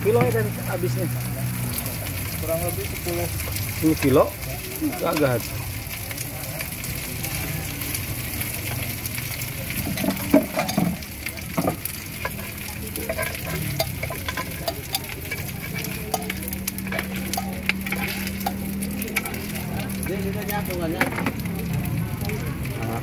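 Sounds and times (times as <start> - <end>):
food sizzling on griddle pan: 0.0 - 23.0
utensil scraping and tapping: 9.8 - 20.1.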